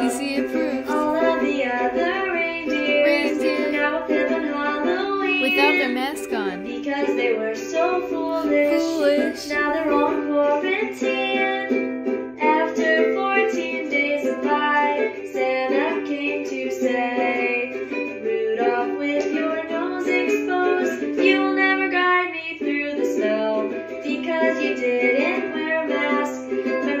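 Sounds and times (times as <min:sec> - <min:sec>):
ukulele strumming chords: 0:00.0 - 0:27.0.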